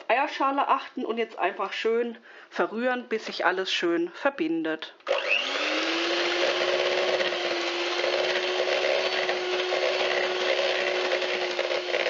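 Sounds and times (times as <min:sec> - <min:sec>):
electric hand mixer whine: 0:05.0 - 0:12.0.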